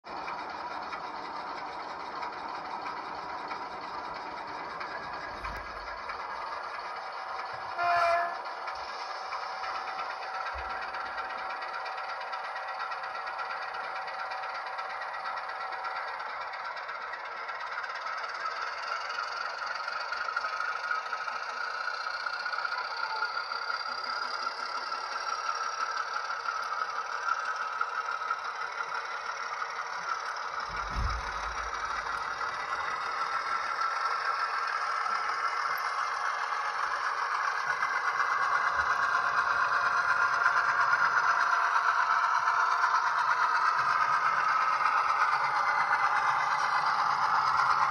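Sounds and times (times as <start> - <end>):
diesel engine sound from small speaker: 0.0 - 47.9
model wagons rattling on track: 0.1 - 47.9
low thump: 30.7 - 31.7.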